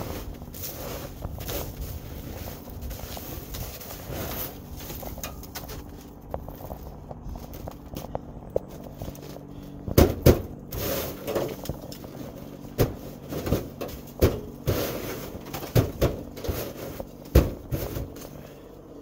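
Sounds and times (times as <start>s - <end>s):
snow crunching on metal hood: 0.0s - 18.9s
faint steady hum: 0.0s - 19.0s.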